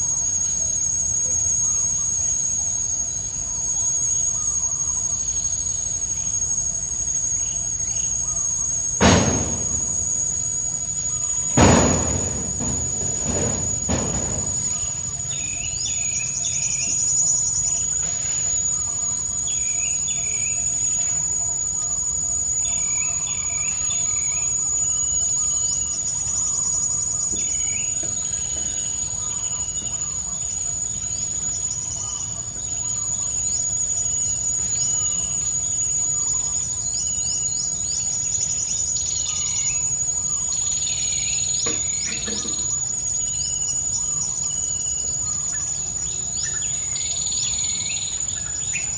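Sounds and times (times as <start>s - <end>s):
high-pitched insect drone: 0.0s - 48.9s
birds chirping: 11.1s - 17.9s.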